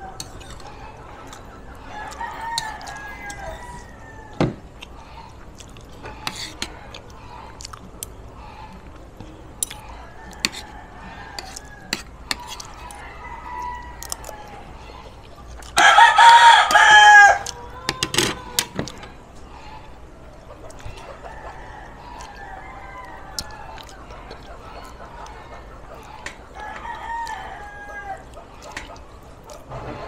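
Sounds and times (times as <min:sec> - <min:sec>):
rooster crowing: 0:00.0 - 0:04.6, 0:09.8 - 0:15.1, 0:15.7 - 0:19.0, 0:21.0 - 0:24.1, 0:26.5 - 0:28.6
cutlery clinking on a plate: 0:00.2 - 0:00.7, 0:11.4 - 0:12.7.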